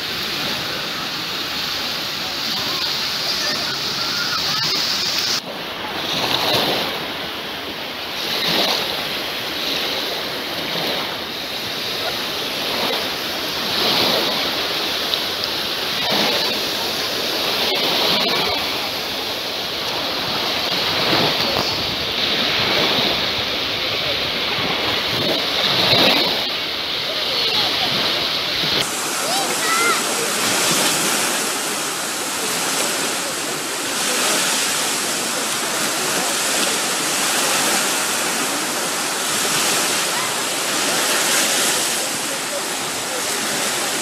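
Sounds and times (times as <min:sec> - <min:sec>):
small waves breaking on shore: 0:00.0 - 0:44.0.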